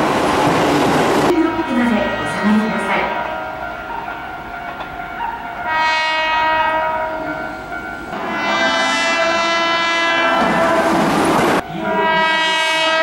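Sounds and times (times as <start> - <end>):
train running noise: 0.0 - 13.0
electric train horn: 5.2 - 13.0.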